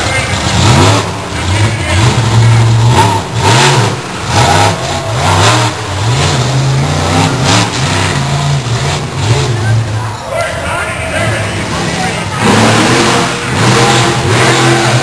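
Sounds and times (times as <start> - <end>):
monster truck engine revving: 0.0 - 15.0
loud noisy bursts: 10.7 - 15.0.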